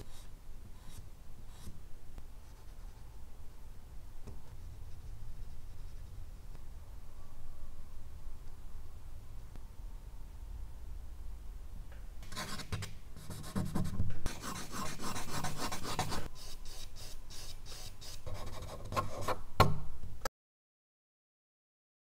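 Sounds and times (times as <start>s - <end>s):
charcoal scratching on paper: 12.3s - 19.4s.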